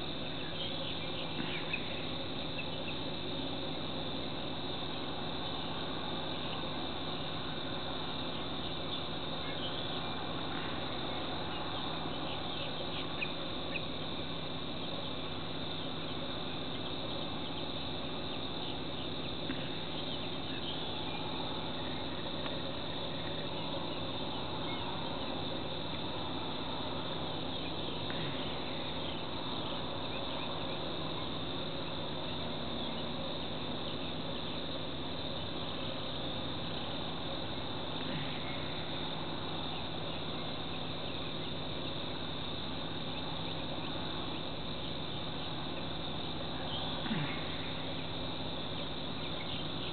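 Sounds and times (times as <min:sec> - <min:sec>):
insects trilling: 0:00.0 - 0:49.9
faint ticks: 0:19.4 - 0:19.7, 0:22.4 - 0:22.6, 0:28.0 - 0:28.4.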